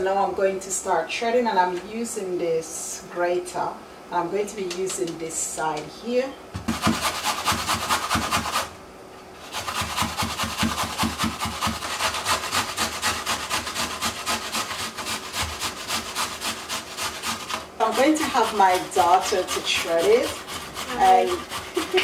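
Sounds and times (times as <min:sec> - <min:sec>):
carrots rasping on a metal grater: 0:06.7 - 0:08.7, 0:09.4 - 0:22.0.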